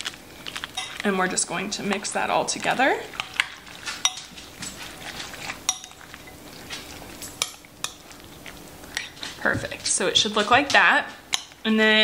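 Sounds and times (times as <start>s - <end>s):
fork stirring thick dip: 1.7s - 11.6s
fork clinking against glass: 5.7s - 6.0s.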